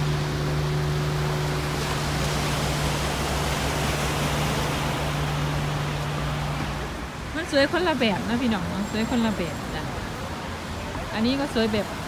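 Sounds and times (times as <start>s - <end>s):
low steady hum: 0.0s - 7.9s
sea surf rushing: 0.0s - 12.0s
wind: 0.0s - 12.0s.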